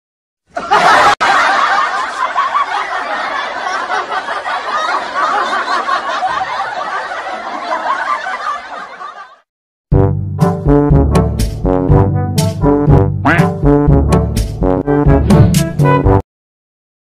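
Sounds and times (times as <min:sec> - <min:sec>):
crowd laughing: 0:00.5 - 0:09.5
trombone-like brass melody: 0:09.9 - 0:16.2.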